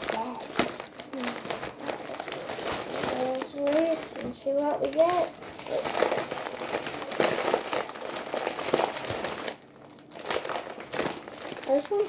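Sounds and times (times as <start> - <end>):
candy wrappers crinkling: 0.0 - 12.0.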